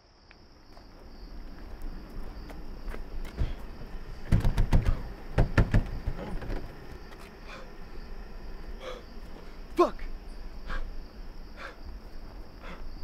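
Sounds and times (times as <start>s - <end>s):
crickets chirping: 0.0s - 13.0s
wooden shed doors thumping: 4.2s - 6.9s.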